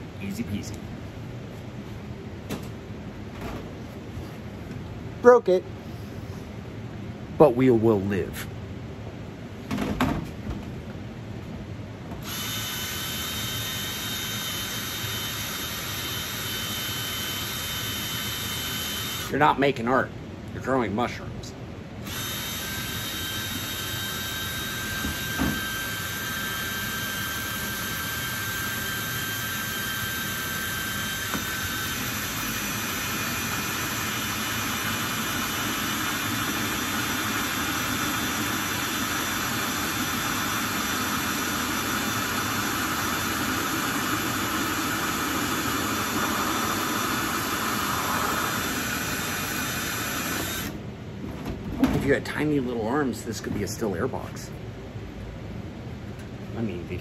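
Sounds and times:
drill whining through plastic: 12.2 - 19.3, 22.0 - 50.8.

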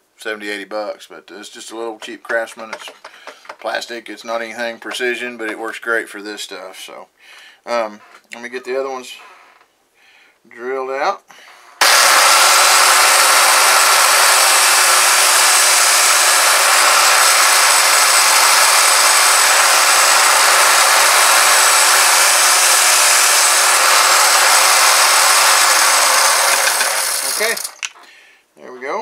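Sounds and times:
drill press motor whine: 11.8 - 27.9
motor winding down: 11.8 - 27.9.

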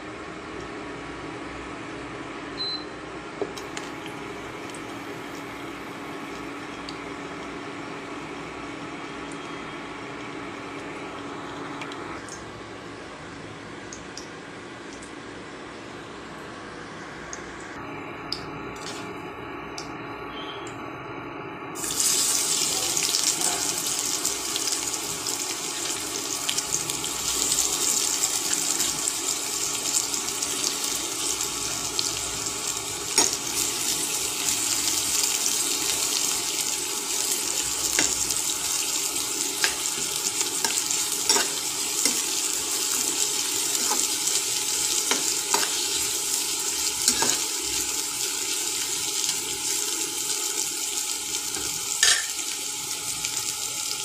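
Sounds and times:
onions sizzling in oil: 21.8 - 54.0.

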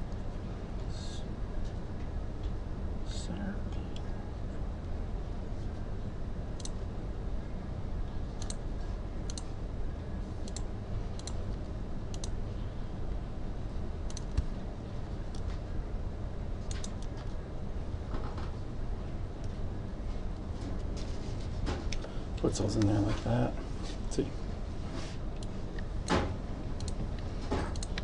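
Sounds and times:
steady low hum: 0.0 - 28.0
computer mouse clicking: 8.4 - 8.6, 9.3 - 9.5, 10.4 - 12.4, 14.1 - 14.5, 16.7 - 17.4, 26.8 - 28.0.

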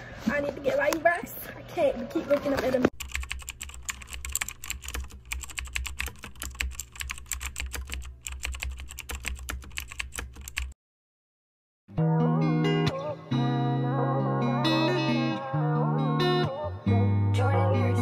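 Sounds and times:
keyboard typing clicks: 2.9 - 10.8
guitar music: 11.9 - 18.0.

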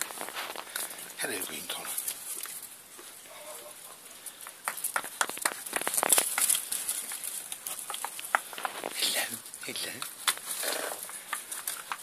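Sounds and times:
plastic crackling and clicking: 9.9 - 12.0.

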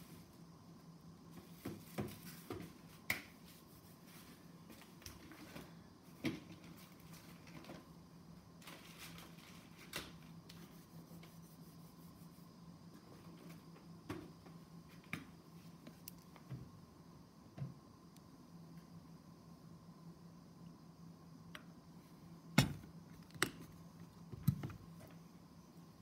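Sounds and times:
faint steady low hum: 0.0 - 26.0.

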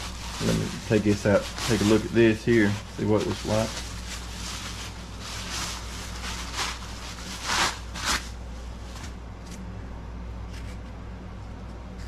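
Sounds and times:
bubble wrap crinkling: 0.0 - 9.6.

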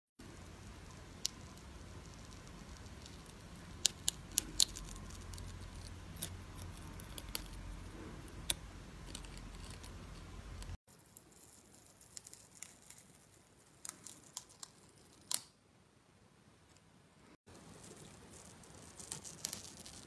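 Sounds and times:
peel-off mask crackling: 0.2 - 15.6, 17.5 - 20.0
low steady hum: 0.2 - 20.0.

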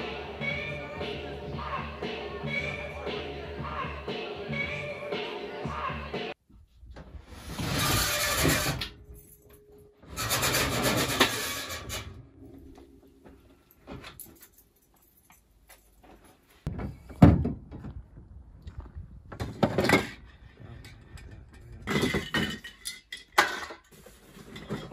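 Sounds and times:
metal cans knocking and clattering: 21.5 - 24.9.

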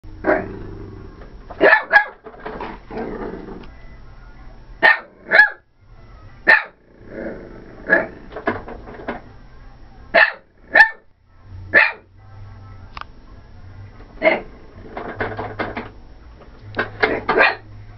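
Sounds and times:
dog barking: 1.6 - 2.2, 4.8 - 5.6, 6.5 - 6.8, 10.2 - 11.1, 11.7 - 12.1, 17.3 - 17.7.

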